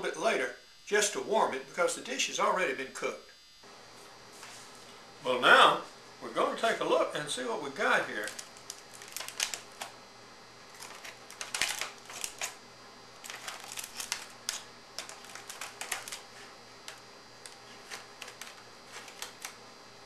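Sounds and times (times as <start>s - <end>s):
aluminum foil crinkling: 8.1s - 10.0s, 10.7s - 19.6s.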